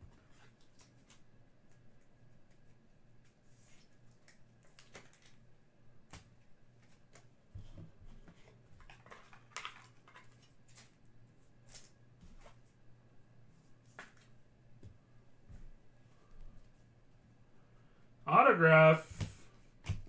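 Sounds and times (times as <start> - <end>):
trading cards rustling: 8.8 - 11.0.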